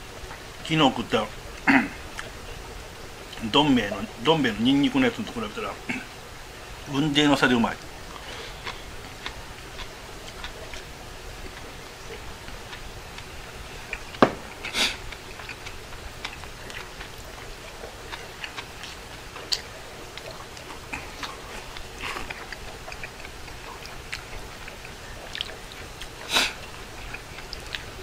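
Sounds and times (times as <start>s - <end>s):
chewing: 1.6s - 4.1s, 7.8s - 28.0s
bowl knocking on wooden table: 14.2s - 14.5s
slurping noodles: 14.6s - 15.6s, 26.1s - 27.2s.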